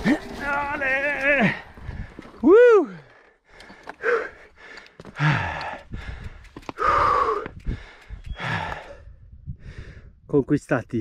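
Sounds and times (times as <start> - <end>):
man panting and gasping: 1.4 - 10.2.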